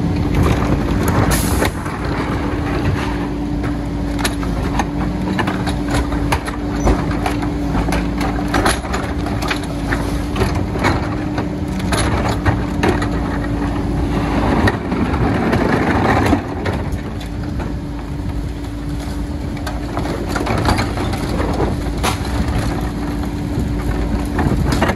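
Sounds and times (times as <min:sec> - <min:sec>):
garbage truck humming: 0:00.0 - 0:24.9
bangs and knocks of bins: 0:20.0 - 0:23.0.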